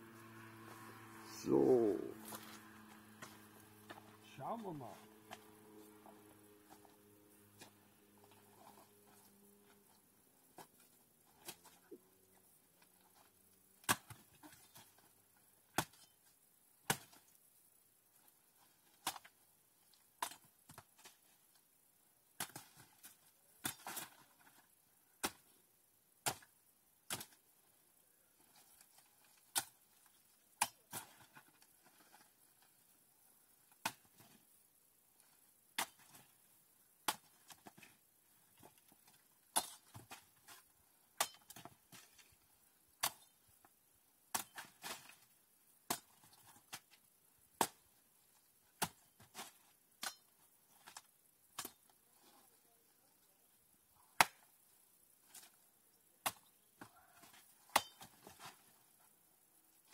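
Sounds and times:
hoe chopping into soil: 57.2 - 58.6.

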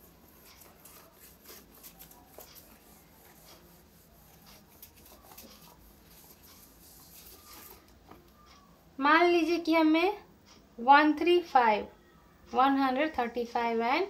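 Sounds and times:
cloth wiping a whiteboard: 0.0 - 8.0.

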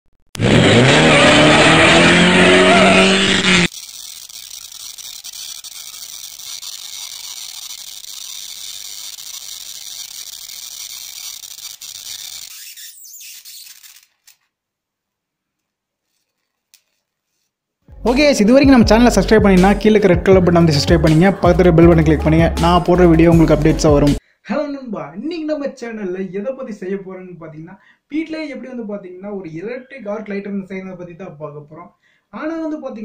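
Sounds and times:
race car engine revving: 0.4 - 3.7.

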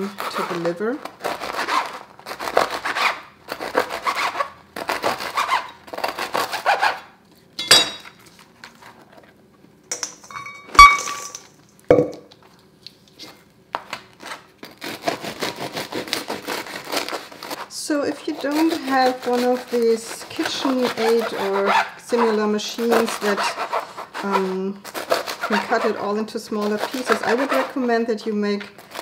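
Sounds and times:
bread knife sawing through bread: 0.0 - 7.1, 14.2 - 28.0, 28.8 - 29.0
bread falling into metal bowl: 9.9 - 12.3.

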